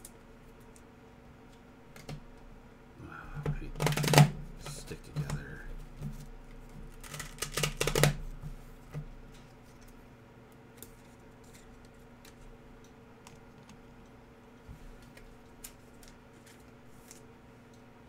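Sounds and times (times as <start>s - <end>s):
cards tapping and clicking: 3.4s - 6.2s, 6.8s - 8.2s.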